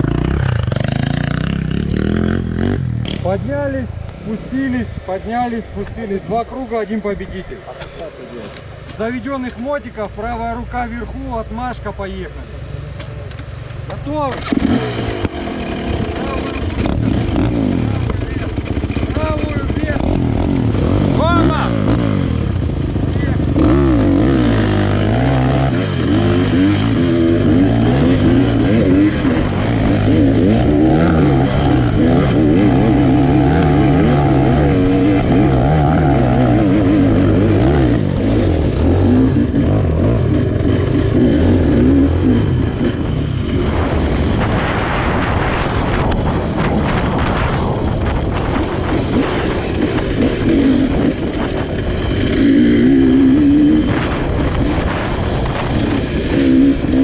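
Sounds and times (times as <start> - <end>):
two-stroke motorcycle engine: 0.0 - 4.4, 12.4 - 57.0.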